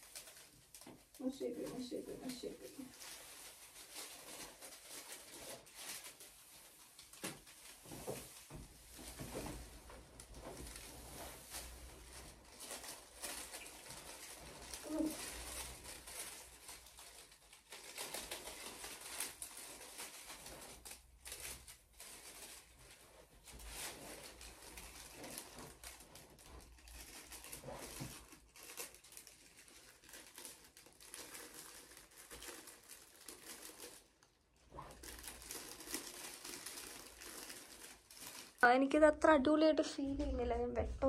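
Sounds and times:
foil curtain rustling and crinkling: 0:00.0 - 0:41.0.

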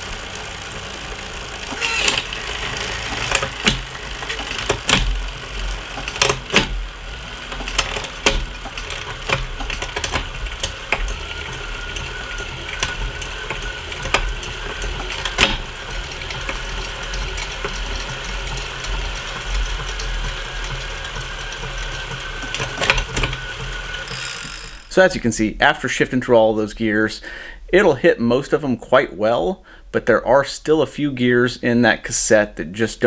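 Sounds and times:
bicycle chain clicking: 0:00.0 - 0:25.0
bicycle drivetrain humming: 0:00.0 - 0:25.0
thin whine: 0:00.0 - 0:25.4.

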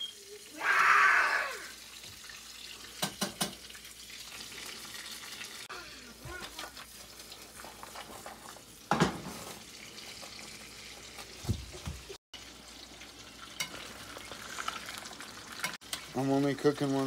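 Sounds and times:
steak sizzling in frying pan: 0:12.4 - 0:17.0.

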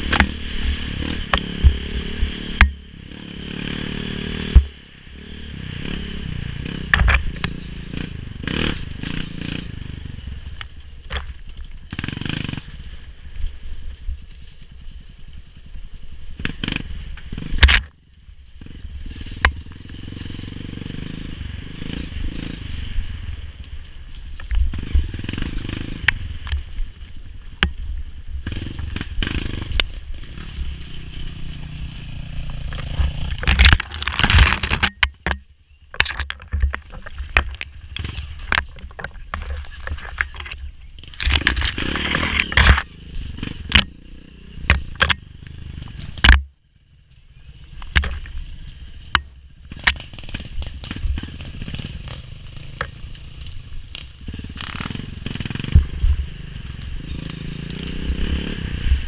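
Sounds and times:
dirt bike engine revving: 0:00.0 - 0:10.6, 0:11.8 - 0:13.4, 0:15.6 - 0:23.6, 0:24.6 - 0:34.9, 0:39.6 - 0:59.0
branches scraping against bike: 0:00.0 - 0:59.0
knocks and clatter: 0:32.5 - 0:44.0.

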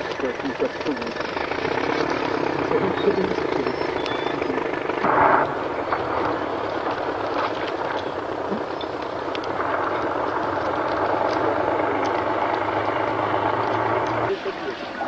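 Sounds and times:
vehicle engine running under load: 0:00.0 - 0:15.0.

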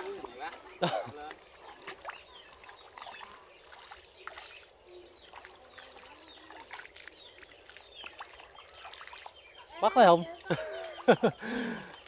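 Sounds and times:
hands squelching in muddy water: 0:01.3 - 0:09.6.

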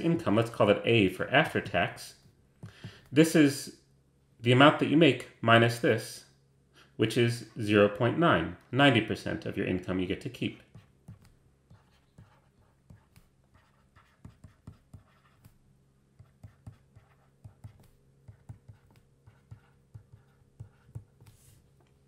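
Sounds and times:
low steady hum: 0:00.0 - 0:22.0
stylus tapping and scratching: 0:10.6 - 0:22.0.

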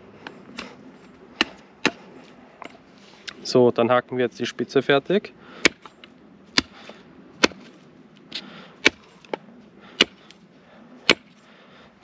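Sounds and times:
machete chopping wood: 0:05.6 - 0:05.9, 0:06.5 - 0:06.8, 0:07.4 - 0:07.7, 0:08.3 - 0:09.4, 0:10.0 - 0:10.2, 0:11.0 - 0:11.4.

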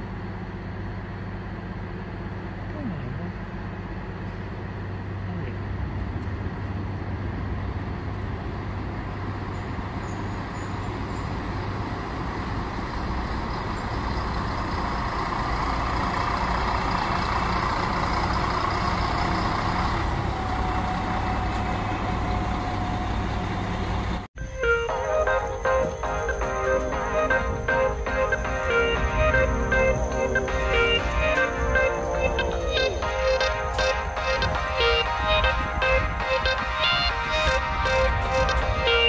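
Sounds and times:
diesel engine humming: 0:00.0 - 0:39.0
train rolling noise: 0:03.4 - 0:39.0
thin steady whine: 0:24.9 - 0:39.0.

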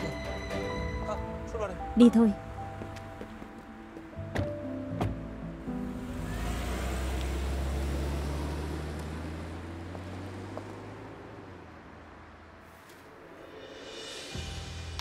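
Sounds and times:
road noise: 0:00.0 - 0:15.0
car engine hum: 0:02.4 - 0:14.0.

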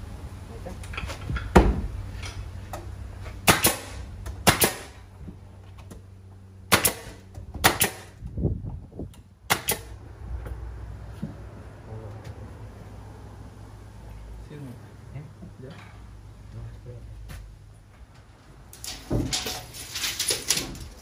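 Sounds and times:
nail gun firing into wood: 0:03.4 - 0:05.0, 0:06.7 - 0:08.1, 0:09.5 - 0:09.9.

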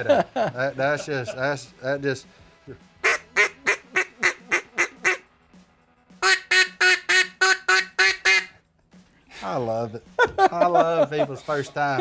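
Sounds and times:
duck call quacks: 0:03.0 - 0:05.2, 0:06.2 - 0:08.5.

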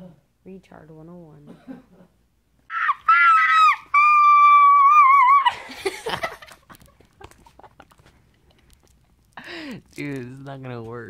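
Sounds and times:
person screaming: 0:02.7 - 0:05.7.

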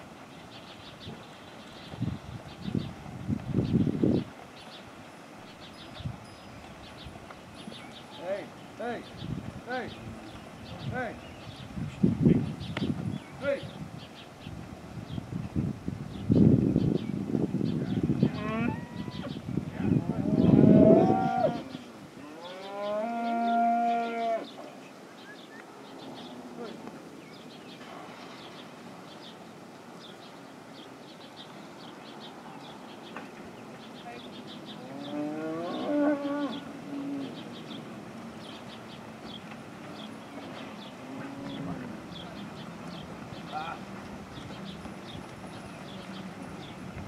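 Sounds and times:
cattle mooing: 0:20.0 - 0:24.5, 0:34.8 - 0:37.4, 0:40.9 - 0:42.0.

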